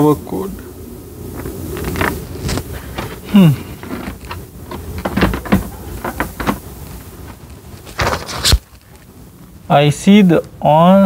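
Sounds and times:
paper rustling: 1.4 - 9.1
plastic fridge knocking and scraping: 2.9 - 6.8.

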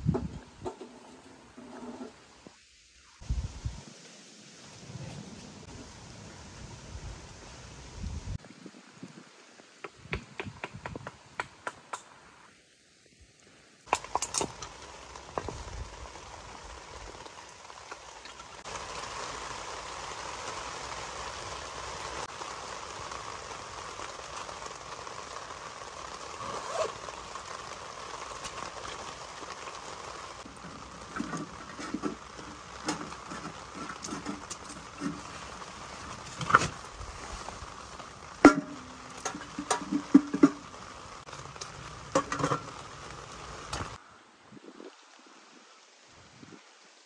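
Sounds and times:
rain falling: 0.0 - 47.0.

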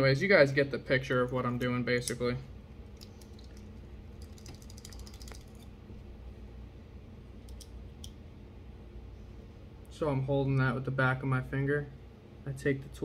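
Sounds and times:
small metal clicks and rattles: 3.0 - 5.7.

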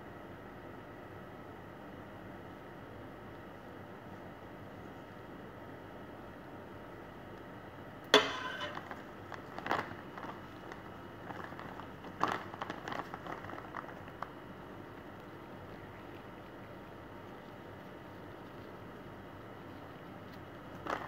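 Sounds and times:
spoon knocking on glass dish: 8.2 - 8.8.

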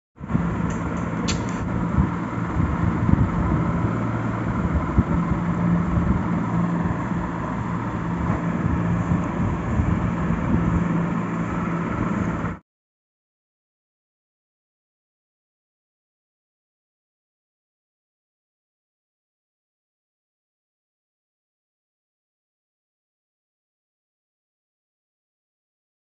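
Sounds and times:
low motor hum: 0.2 - 12.6.

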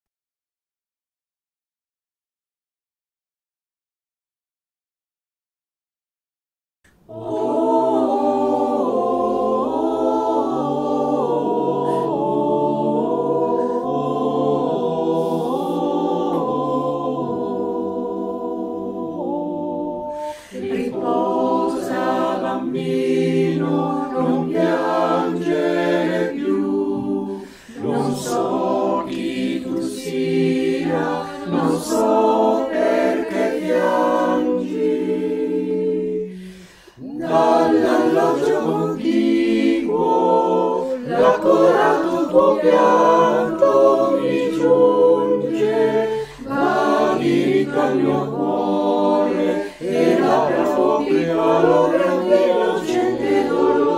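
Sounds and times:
mixed choir singing a cappella: 6.9 - 53.9.

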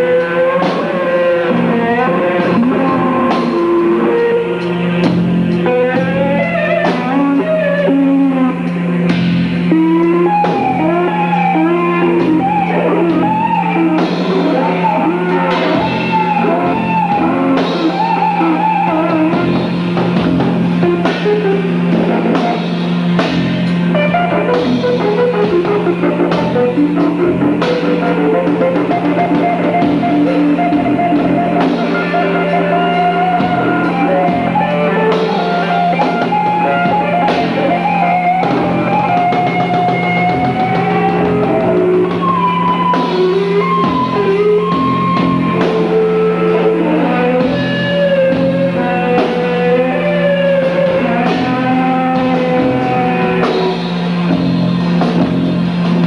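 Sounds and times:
drum kit: 0.0 - 56.0
electric guitar: 0.0 - 56.0
low drone: 0.0 - 56.0.

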